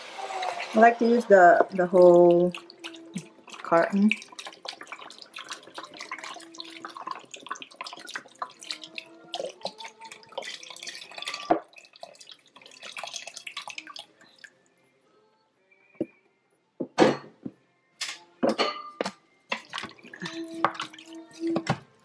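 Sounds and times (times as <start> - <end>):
broth pouring into metal pot: 0.0 - 14.6, 19.5 - 22.0
liquid dripping and gurgling: 0.5 - 14.6, 19.5 - 22.0.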